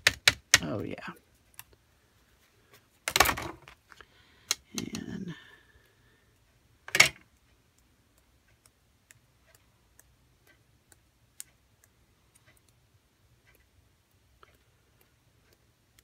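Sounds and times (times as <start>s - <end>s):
brush flicking paint ticks: 7.2s - 16.0s.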